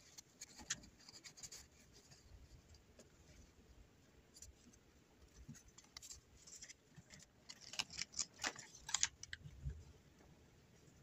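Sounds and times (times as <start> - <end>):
plastic sheet crinkling: 5.8 - 9.5.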